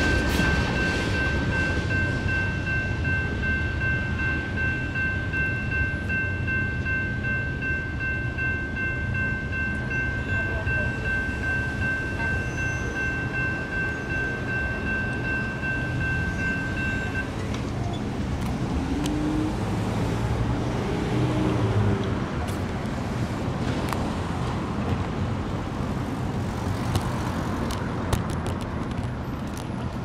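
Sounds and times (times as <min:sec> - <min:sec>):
crossing bell ringing: 0:00.0 - 0:18.2
road vehicles pulling away: 0:11.6 - 0:30.0.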